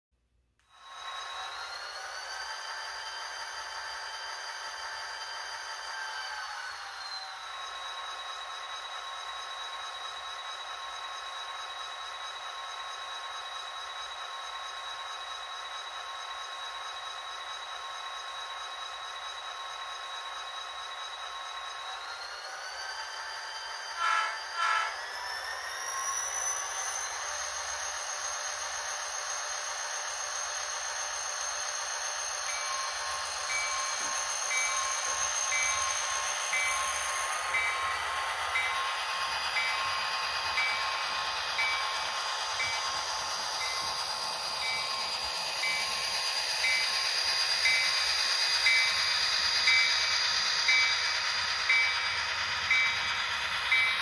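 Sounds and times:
model locomotive diesel engine sound: 0.2 - 54.0
high whine rising in pitch: 0.7 - 54.0
model train horn blasts: 24.0 - 25.0.

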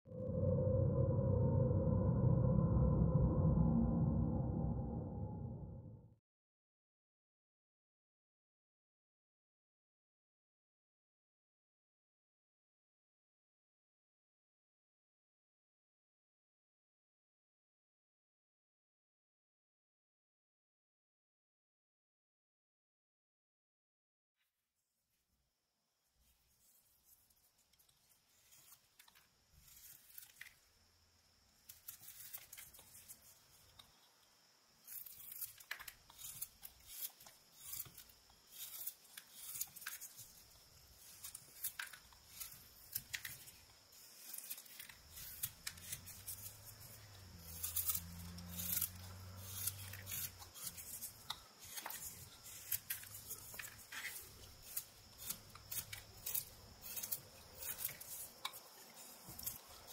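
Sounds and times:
knife slicing wood shavings: 28.4 - 30.6, 31.7 - 33.4, 34.8 - 59.9.

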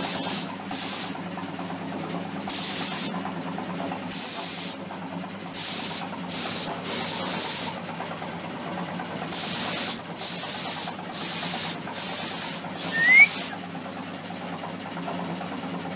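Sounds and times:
paint spray gun hissing: 0.0 - 1.2, 2.5 - 3.2, 4.1 - 4.8, 5.5 - 7.8, 9.3 - 13.6.

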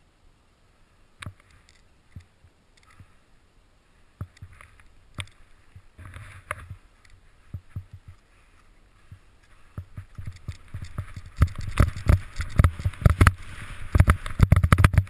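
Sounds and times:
sharp knocks and thumps: 9.1 - 15.0
skis hissing through snow: 12.2 - 14.4.

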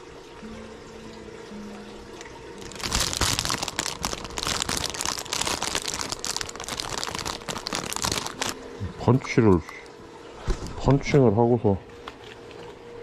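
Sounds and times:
plastic packaging crinkling: 2.6 - 8.6.

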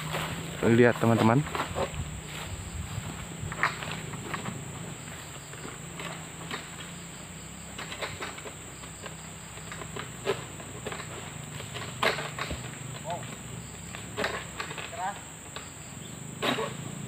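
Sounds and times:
insects droning: 0.0 - 17.0
sickle clicks and rustles: 7.6 - 15.8.

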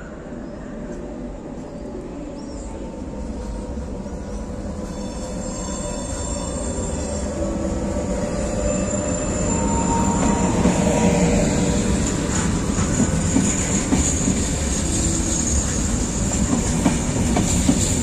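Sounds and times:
electric train rumble: 0.0 - 18.0
high whine and squeal: 4.2 - 16.3.

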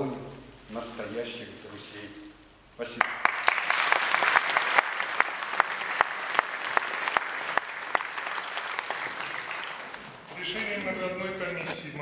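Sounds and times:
audience applauding: 2.9 - 10.3.

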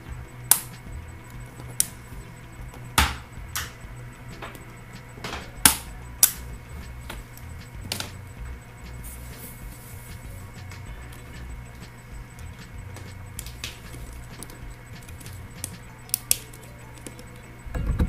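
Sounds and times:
low steady hum: 0.0 - 18.0
plastic clicks and snaps: 11.8 - 17.4.

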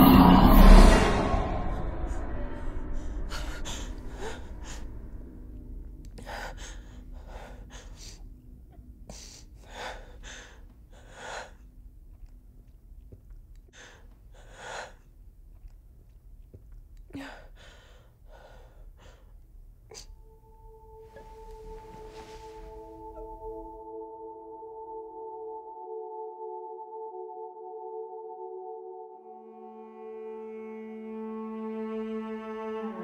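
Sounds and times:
loud low sound: 0.0 - 6.0
person gasping breaths: 3.0 - 5.3, 6.1 - 8.4, 9.0 - 11.7, 13.7 - 15.2, 17.1 - 20.2.

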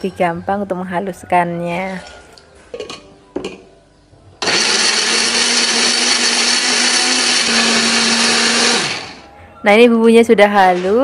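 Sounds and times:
electric blender grinding: 4.4 - 9.2, 10.6 - 11.0.

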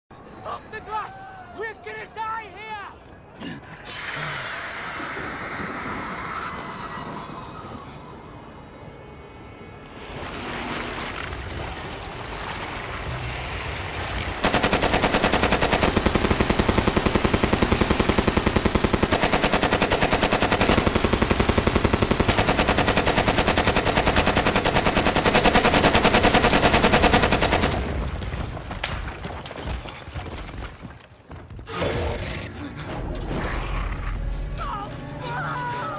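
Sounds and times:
automatic rifle fire: 14.4 - 28.3.

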